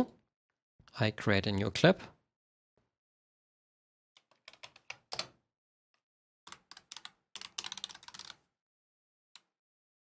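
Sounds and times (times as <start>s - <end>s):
typing on computer keyboard: 4.2s - 5.4s, 6.5s - 8.4s.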